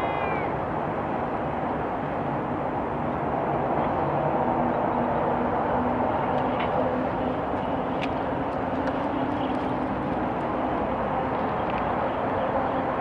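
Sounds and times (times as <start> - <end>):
outdoor background rumble: 0.0 - 13.0.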